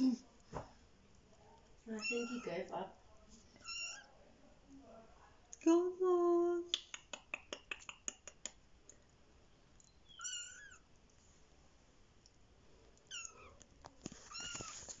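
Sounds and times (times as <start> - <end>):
kitten meowing: 10.1 - 10.8, 13.1 - 13.5.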